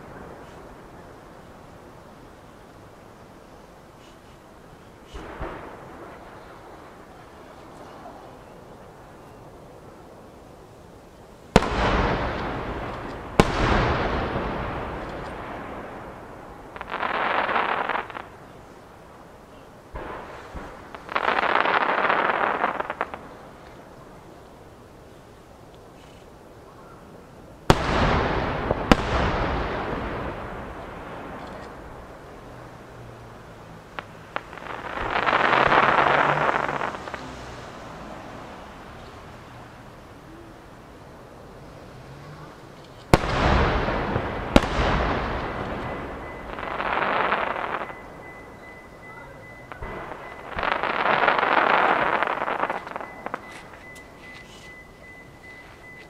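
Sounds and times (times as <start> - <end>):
firework crackling hiss: 0.0 - 8.5, 11.4 - 26.6, 27.6 - 48.1, 49.9 - 55.0
firework crack: 0.0 - 26.6, 27.6 - 55.9
small firework bangs: 5.0 - 8.6, 11.5 - 18.8, 19.5 - 24.2, 27.6 - 32.4, 33.9 - 39.3, 42.6 - 54.7
firework shells bursting: 11.5 - 18.4
firework boom: 43.1 - 48.4.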